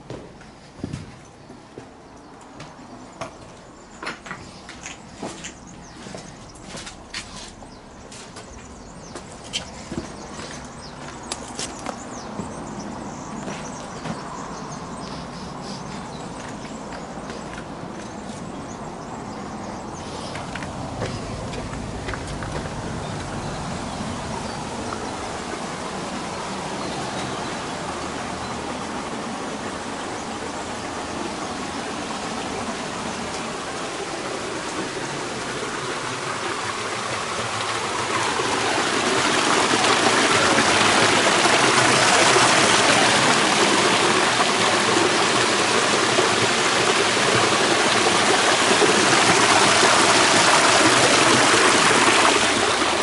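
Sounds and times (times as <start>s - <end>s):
water splashing over rocks: 20.2s - 53.0s.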